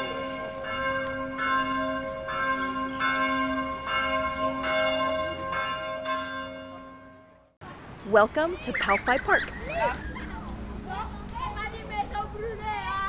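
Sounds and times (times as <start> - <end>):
bells ringing: 0.0 - 7.5.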